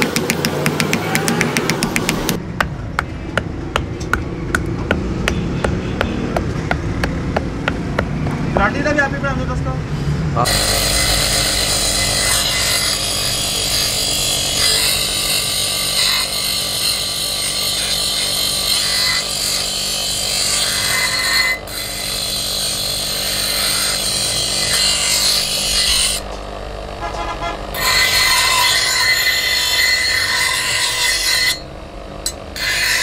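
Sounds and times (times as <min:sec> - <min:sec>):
bench grinder motor hum: 0:10.4 - 0:33.0
grinding wheel rasping on steel: 0:10.4 - 0:33.0.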